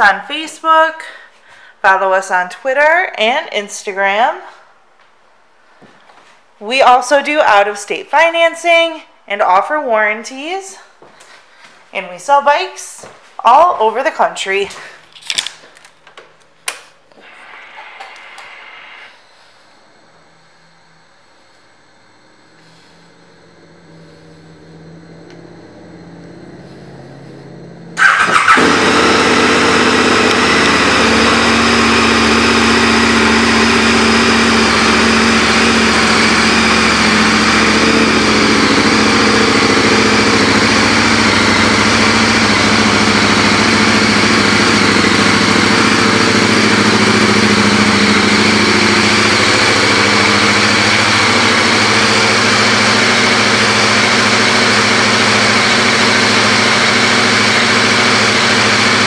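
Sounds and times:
motorcycle engine starting and idling: 17.8 - 59.0.

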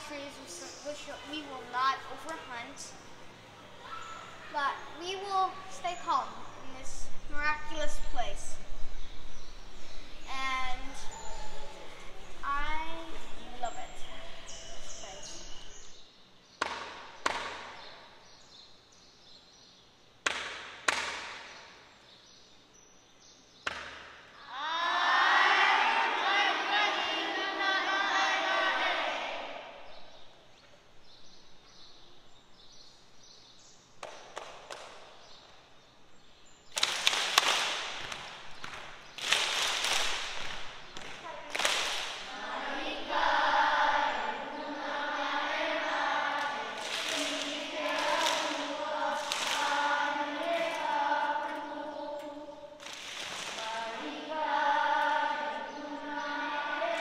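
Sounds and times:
group singing in unison: 24.6 - 29.8, 42.2 - 57.0.

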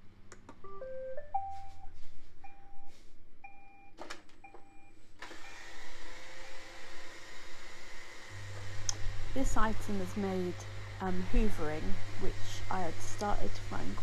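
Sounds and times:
vacuum motor whirring hiss: 5.2 - 14.0.

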